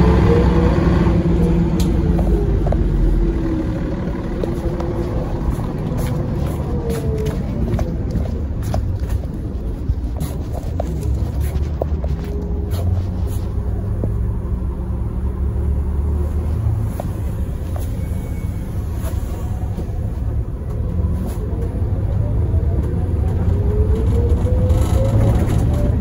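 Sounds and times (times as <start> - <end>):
bus diesel engine rumble: 0.0 - 26.0
road noise: 0.0 - 26.0.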